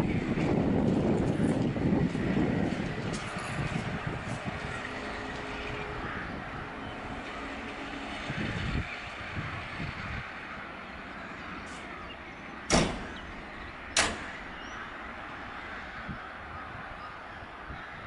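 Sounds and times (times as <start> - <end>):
diesel locomotive engine: 0.0 - 18.0
sharp knocks: 12.7 - 13.4, 14.0 - 14.4.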